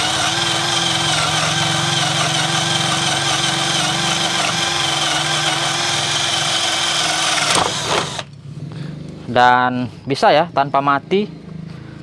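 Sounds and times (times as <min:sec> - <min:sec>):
cordless drill motor whining: 0:00.0 - 0:08.3.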